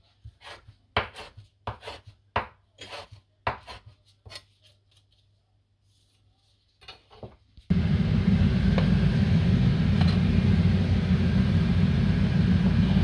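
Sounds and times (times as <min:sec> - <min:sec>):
knife chopping on cutting board: 0:00.3 - 0:04.4.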